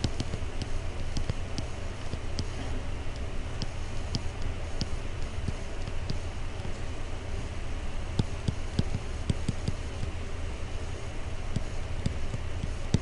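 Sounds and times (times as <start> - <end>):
stylus tapping on screen: 0.0 - 6.8, 8.1 - 10.2, 11.5 - 13.0.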